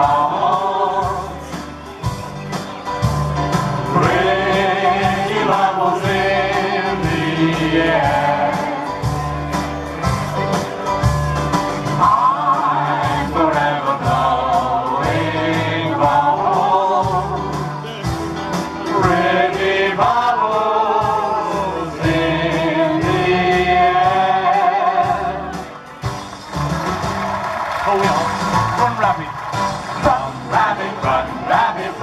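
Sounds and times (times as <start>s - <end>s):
group singing popular song: 0.0s - 1.7s, 3.8s - 9.4s, 12.0s - 17.8s, 18.8s - 25.7s, 29.8s - 32.0s
backing music with pulsing bass: 0.0s - 32.0s.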